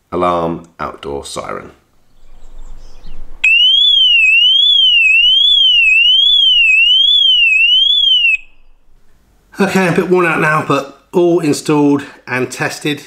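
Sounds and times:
electronic siren wailing: 3.4s - 8.8s.

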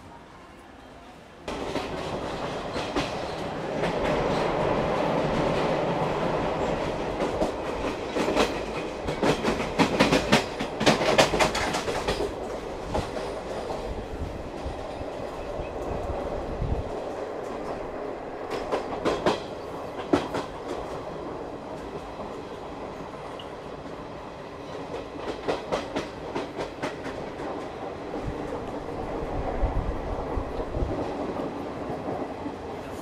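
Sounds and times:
train rolling rumble: 1.4s - 33.0s
wheels clacking over rail joints: 1.5s - 14.0s, 17.0s - 21.0s, 24.7s - 27.9s.

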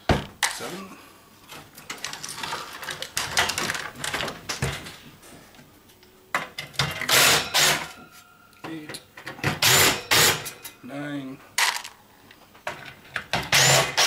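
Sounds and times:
cordless drill running: 13.5s - 14.0s.

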